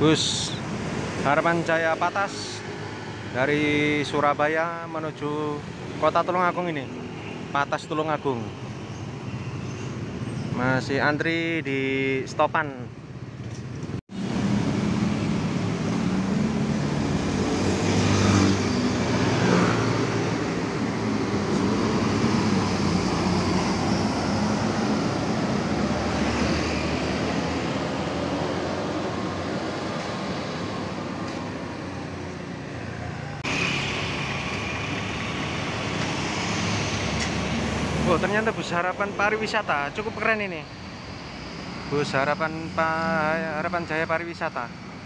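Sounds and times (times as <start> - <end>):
road traffic: 0.0 - 45.0
bus diesel engine pulling away: 14.2 - 32.6, 33.4 - 39.2.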